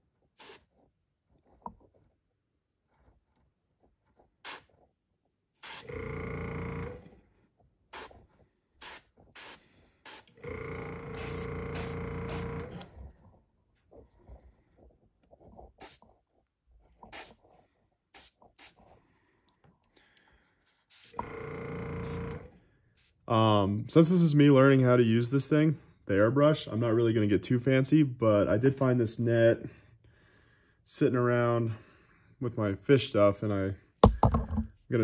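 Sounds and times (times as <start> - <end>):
airbrush air hissing: 0.4 - 0.6, 4.5 - 4.7, 8.0 - 8.2, 8.8 - 10.4, 11.2 - 12.6, 15.8 - 16.0, 17.1 - 17.4, 18.2 - 18.8, 20.9 - 21.2.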